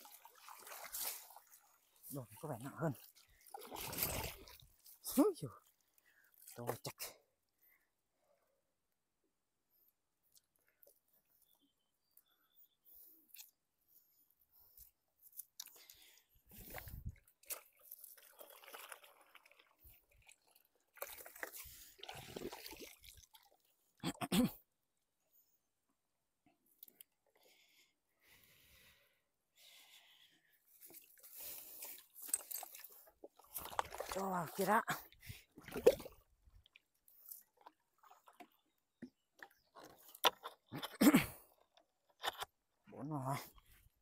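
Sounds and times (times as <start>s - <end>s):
water sloshing and trickling: 0.0s - 7.6s, 14.6s - 24.0s, 30.7s - 40.8s.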